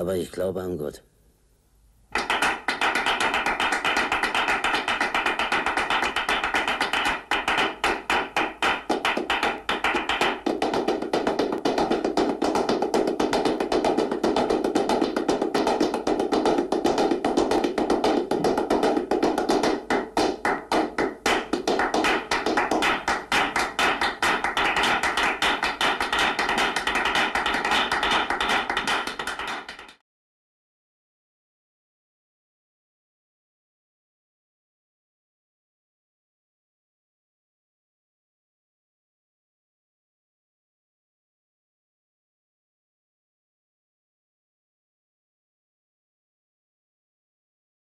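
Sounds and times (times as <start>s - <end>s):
rapid percussive clapping: 2.1s - 30.0s.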